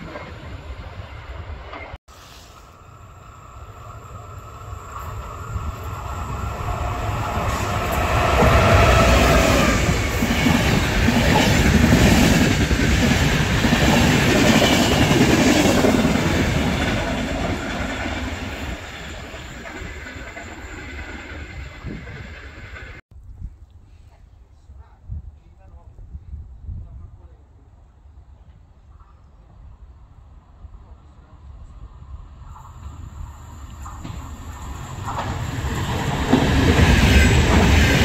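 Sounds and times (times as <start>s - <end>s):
passenger train rumble: 0.0s - 23.0s, 24.8s - 38.0s
train wheels clattering over rail joints: 33.8s - 38.0s.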